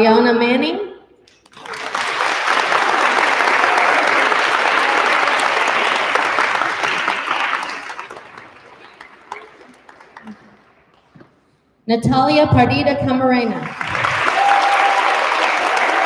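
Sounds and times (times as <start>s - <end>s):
audience applauding: 1.4s - 11.1s, 13.6s - 16.0s.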